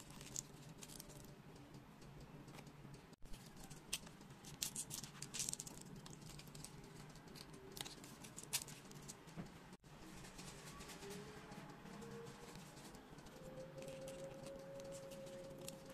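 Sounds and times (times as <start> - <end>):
foam puzzle pieces scratching and clicking: 0.0 - 1.2, 3.3 - 9.2.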